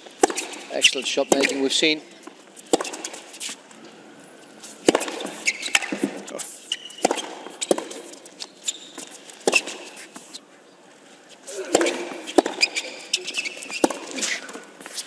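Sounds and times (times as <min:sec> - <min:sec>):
shoes squeaking on hard court: 0:00.0 - 0:15.0
tennis ball struck by racquets: 0:00.1 - 0:03.5, 0:04.7 - 0:08.2, 0:08.9 - 0:10.0, 0:11.7 - 0:14.7.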